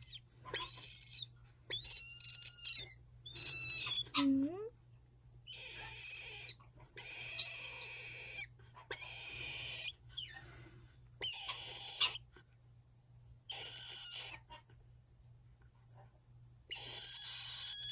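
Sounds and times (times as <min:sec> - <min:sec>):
cockatoo chick raspy begging calls: 0:11.2 - 0:12.3.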